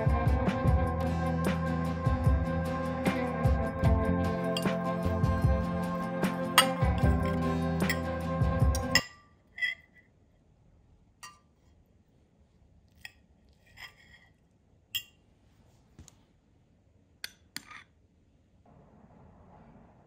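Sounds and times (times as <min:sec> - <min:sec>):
knife and fork clinking on a plate: 0:06.6 - 0:08.1
spoon clinking against a glass bowl: 0:06.6 - 0:08.2, 0:08.8 - 0:09.8, 0:11.2 - 0:11.5, 0:14.9 - 0:15.2.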